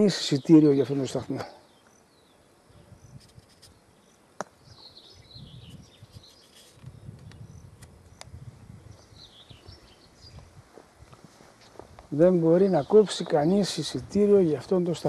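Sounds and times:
wildlife chirping: 0.0s - 10.5s.

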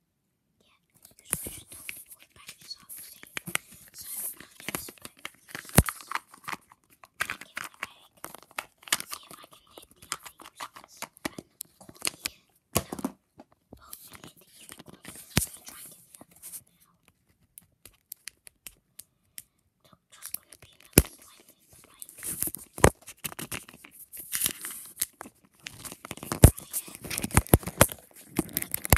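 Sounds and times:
packaging crinkling and tearing: 1.2s - 12.4s, 20.6s - 28.9s
small clicks and taps: 17.0s - 19.5s, 21.9s - 28.9s.

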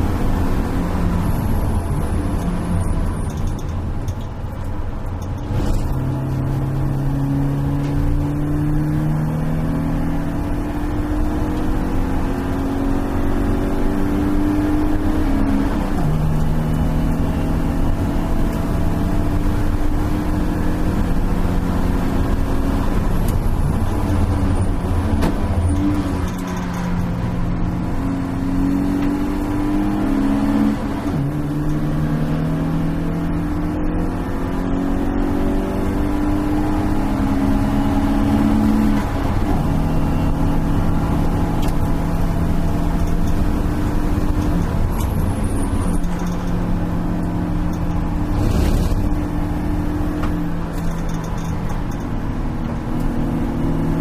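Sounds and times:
race car engine under load: 0.0s - 54.0s
road and tyre noise: 0.0s - 54.0s.

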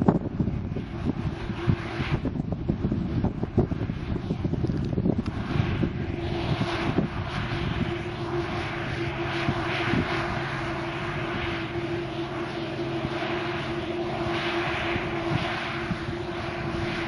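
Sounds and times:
combine harvester running: 6.0s - 17.0s.

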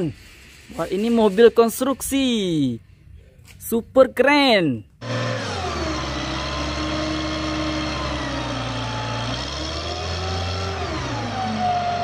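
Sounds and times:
diesel engine running at low revs: 5.0s - 12.0s.

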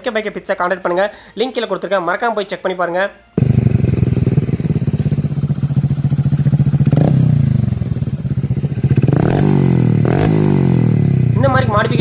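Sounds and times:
motorcycle engine idling and revving: 3.4s - 12.0s.

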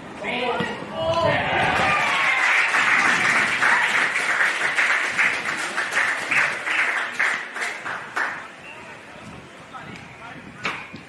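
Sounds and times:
people clapping: 1.7s - 8.6s.

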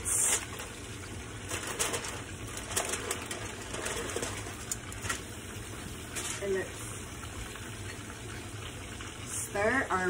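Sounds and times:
meat frying in oil: 0.0s - 10.0s
aluminium foil crinkling: 0.1s - 5.4s, 6.0s - 6.5s.

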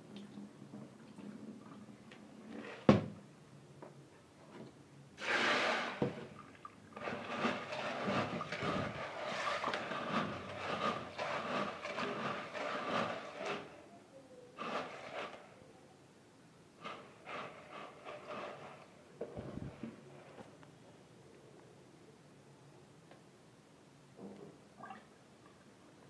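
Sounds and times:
peas swishing and clicking in water: 6.5s - 13.7s.

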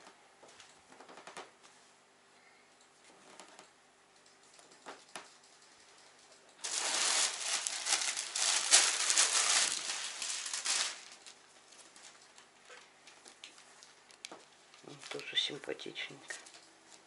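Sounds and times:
plastic packaging crinkling: 6.6s - 12.5s.

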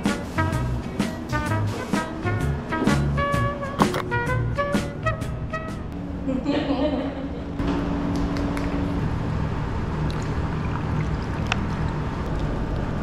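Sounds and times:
background music: 0.0s - 6.0s.

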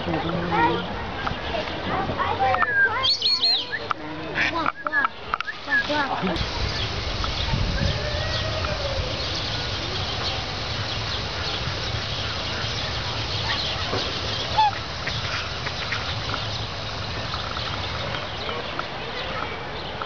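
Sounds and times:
waterfowl calling: 2.5s - 18.1s.

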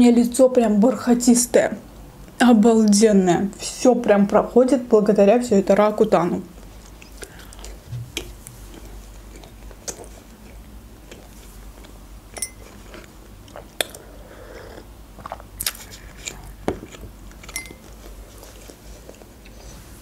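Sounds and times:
chewing and mouth sounds: 6.6s - 12.0s, 12.6s - 19.7s.

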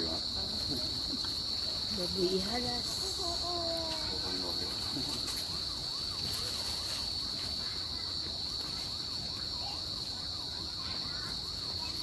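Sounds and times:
insects droning: 0.0s - 12.0s
woman speaking: 1.9s - 4.0s.

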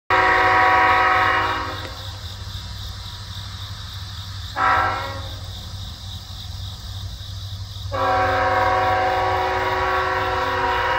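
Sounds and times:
locomotive air horn blasts: 0.1s - 2.0s, 4.6s - 5.4s, 7.9s - 10.9s.

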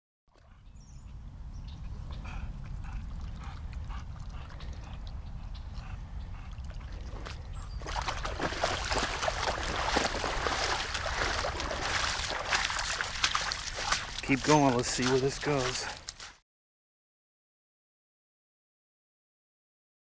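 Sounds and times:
splashing through shallow water: 6.4s - 16.4s.

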